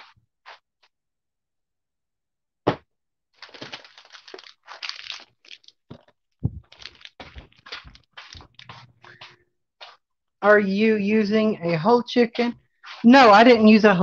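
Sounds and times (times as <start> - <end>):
phone handling crackles and rustles: 3.4 - 8.7
dull thumps: 5.9 - 8.0.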